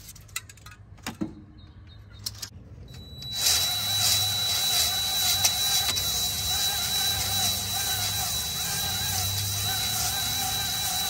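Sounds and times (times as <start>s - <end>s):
cordless drill spinning a hone: 3.0s - 11.0s.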